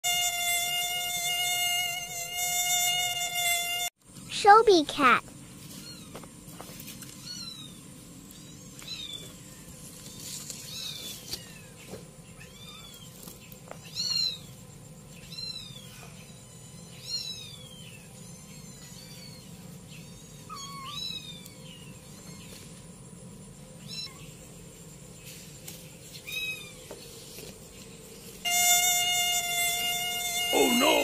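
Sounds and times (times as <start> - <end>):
kitten meowing: 20.4 - 21.6.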